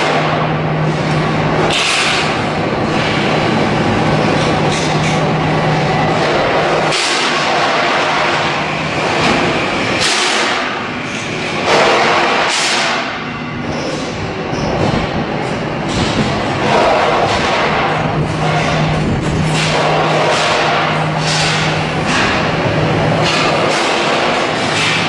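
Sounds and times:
constant rushing noise: 0.0s - 25.0s
low machinery hum: 0.0s - 25.0s.

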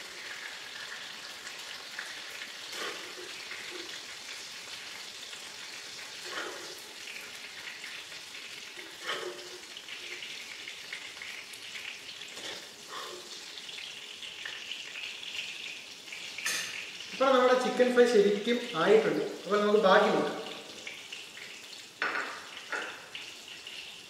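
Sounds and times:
oil sizzling in deep-frying: 0.0s - 24.0s
metal spoon knocking on pan: 22.0s - 23.0s.

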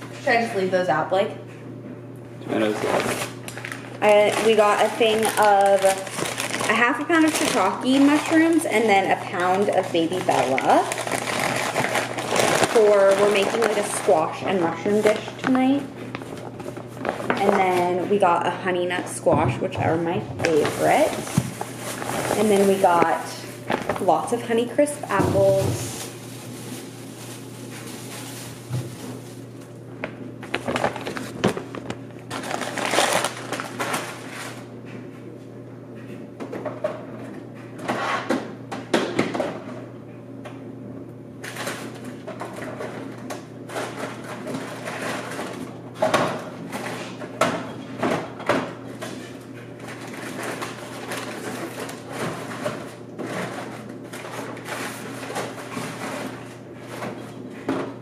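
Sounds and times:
steady low hum: 0.0s - 58.0s
bags rustling: 2.6s - 18.0s, 20.4s - 29.7s, 30.4s - 34.7s.

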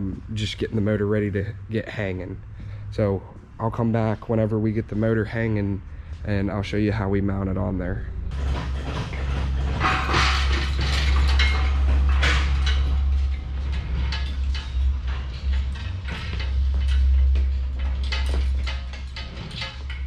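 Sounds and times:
steady low hum: 0.0s - 20.0s
hand tools clanking on metal: 8.3s - 20.0s.

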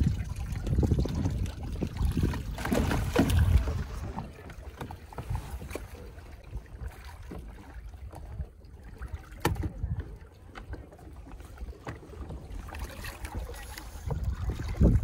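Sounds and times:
water lapping: 0.0s - 15.0s
water splashing around kayak: 0.0s - 15.0s
small knocks on hull: 2.2s - 5.9s, 9.2s - 11.0s.

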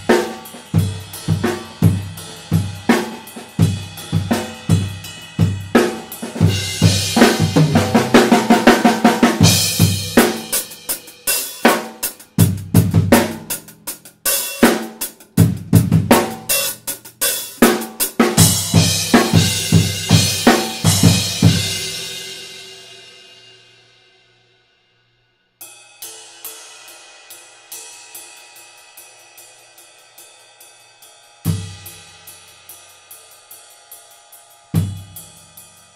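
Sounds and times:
drum kit groove with fills: 0.0s - 23.3s, 25.6s - 35.9s.

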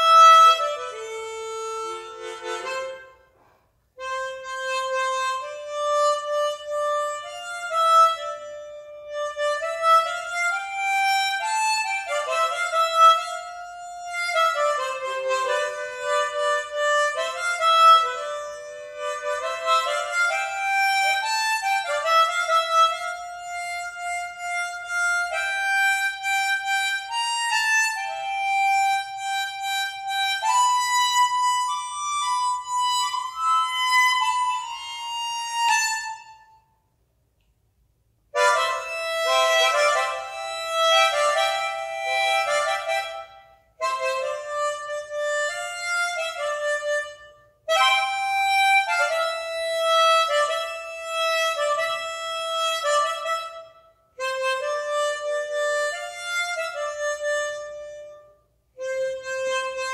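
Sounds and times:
harmonica slow melody: 0.0s - 37.5s, 38.2s - 59.9s.

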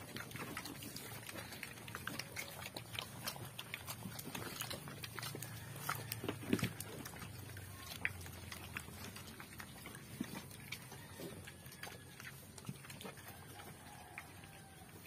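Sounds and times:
pig snort: 0.0s - 7.4s
pigs snuffling and chewing: 0.0s - 15.0s.

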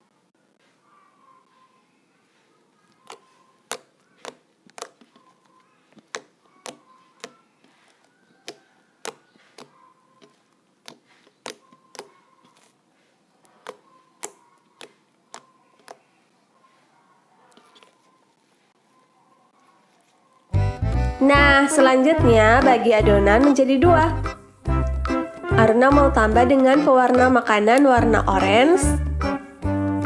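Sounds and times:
slime clicking and popping: 2.9s - 5.3s, 6.0s - 7.4s, 8.4s - 9.7s, 10.8s - 12.1s, 13.6s - 16.0s.

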